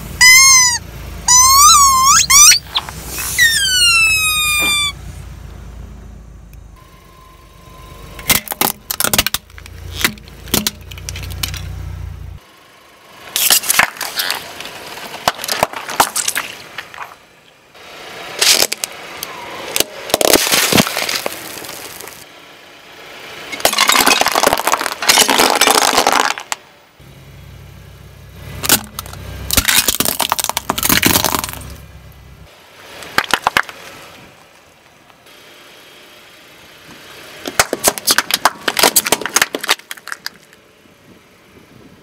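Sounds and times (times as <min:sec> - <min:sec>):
low steady rumble: 0:00.0 - 0:19.2, 0:26.4 - 0:33.0
plastic toys cracking and crunching: 0:08.3 - 0:11.7, 0:13.4 - 0:17.2, 0:19.8 - 0:22.2, 0:23.6 - 0:26.6, 0:28.6 - 0:31.7, 0:37.5 - 0:40.6.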